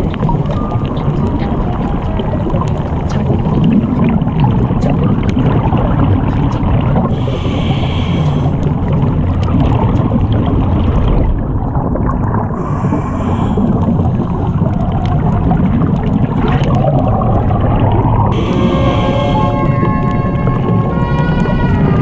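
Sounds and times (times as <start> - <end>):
underwater rush of water: 0.0 - 22.0
background music with held tones: 18.3 - 22.0.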